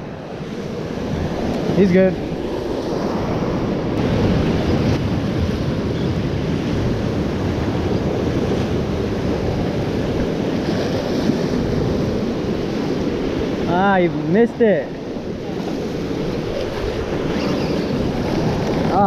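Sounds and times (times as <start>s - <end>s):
wind buffeting microphone: 0.0s - 19.0s
surf breaking against rocks: 14.9s - 19.0s.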